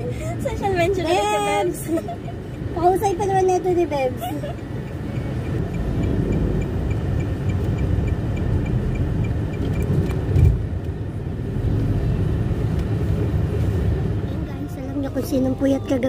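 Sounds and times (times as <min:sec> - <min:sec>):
car road and engine rumble: 0:00.0 - 0:16.0
fast regular ticking: 0:04.6 - 0:09.9.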